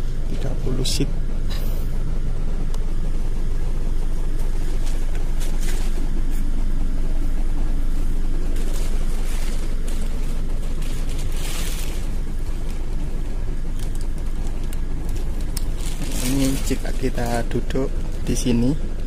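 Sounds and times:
bus diesel engine idling: 0.0s - 19.0s
soft rustles: 4.4s - 6.6s, 7.2s - 13.0s.

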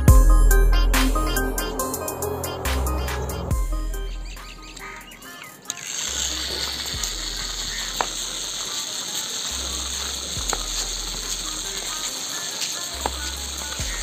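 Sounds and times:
toy truck motor whirring: 4.4s - 14.0s.

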